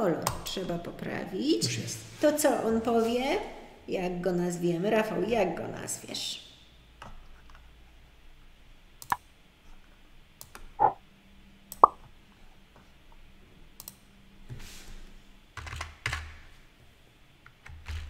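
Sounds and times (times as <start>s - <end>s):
computer mouse clicks: 9.0s - 9.2s, 13.8s - 14.0s.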